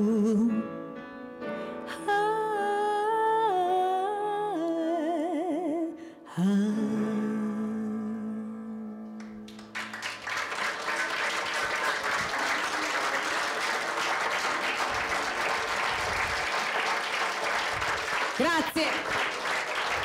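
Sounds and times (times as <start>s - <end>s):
woman singing: 0.0s - 0.6s, 1.8s - 9.4s
piano: 0.0s - 18.4s
audience applauding: 9.2s - 20.0s.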